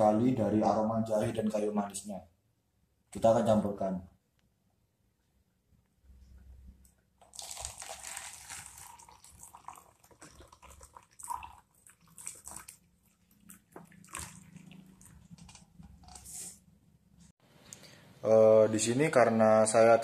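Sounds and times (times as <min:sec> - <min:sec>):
water pouring into a cup: 0:07.2 - 0:16.3.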